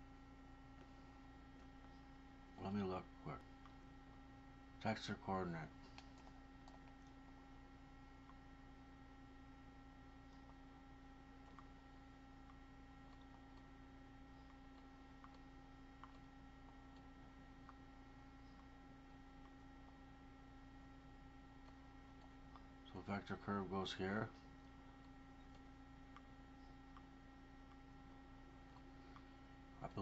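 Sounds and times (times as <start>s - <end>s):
faint electrical hum: 0.0s - 30.0s
computer mouse clicks: 12.4s - 13.7s, 14.3s - 20.0s, 24.4s - 27.9s.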